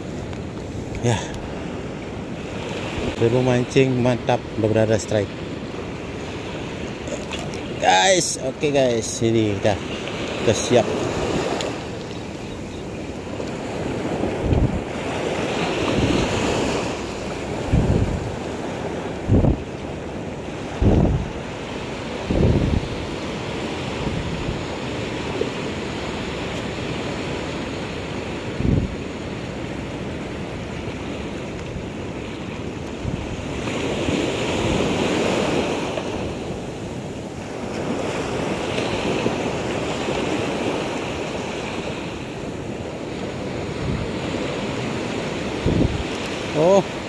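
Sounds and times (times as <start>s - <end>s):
sea waves breaking on shore: 0.0s - 47.0s
wind buffeting microphone: 9.5s - 46.4s.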